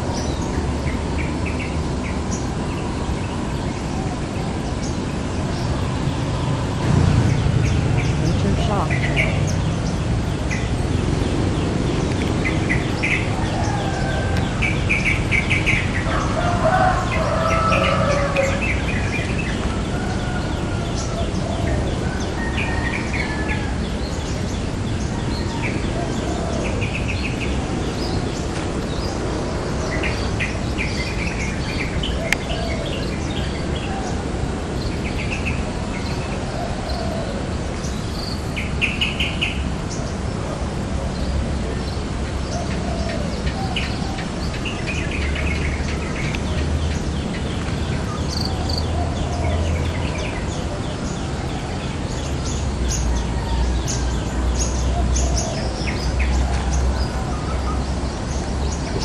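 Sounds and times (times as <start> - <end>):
low background rumble: 0.0 - 26.0
birds chattering: 0.0 - 59.0.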